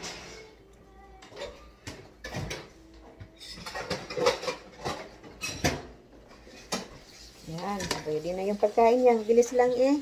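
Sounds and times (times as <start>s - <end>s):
dishes and cutlery clattering: 0.0s - 0.5s, 1.2s - 8.2s.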